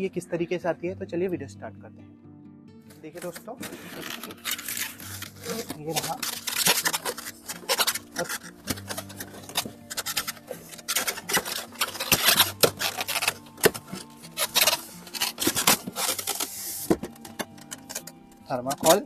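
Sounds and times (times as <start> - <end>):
foam scraping against cardboard box: 3.6 - 17.0.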